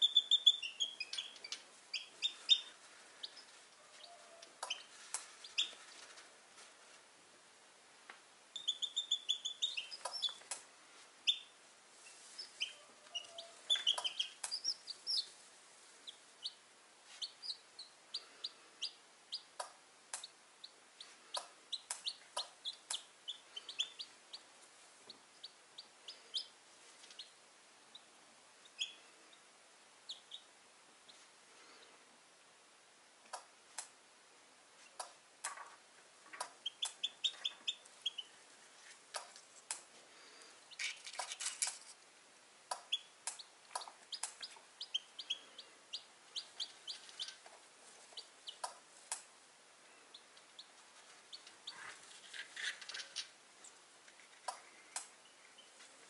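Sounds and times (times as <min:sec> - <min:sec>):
chicks peeping: 0:00.0 - 0:06.2, 0:08.6 - 0:10.6, 0:11.2 - 0:15.4, 0:16.0 - 0:29.5, 0:30.1 - 0:31.8, 0:36.3 - 0:38.4, 0:42.7 - 0:49.3, 0:50.1 - 0:53.8, 0:54.4 - 0:56.0.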